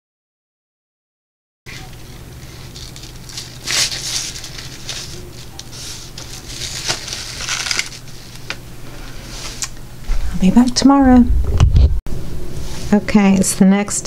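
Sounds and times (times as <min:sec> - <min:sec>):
steady low hum: 0:01.7 - 0:14.0
mesh cover rustling and clattering: 0:02.4 - 0:08.5.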